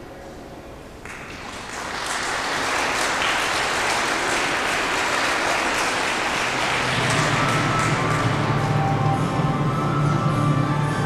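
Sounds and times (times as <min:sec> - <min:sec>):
audience applauding: 0:01.0 - 0:09.6
low musical tone: 0:06.6 - 0:11.0.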